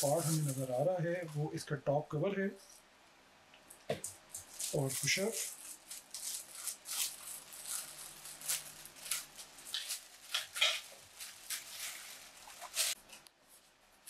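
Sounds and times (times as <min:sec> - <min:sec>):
plastic bag crinkling: 0:00.0 - 0:01.5, 0:03.9 - 0:13.2.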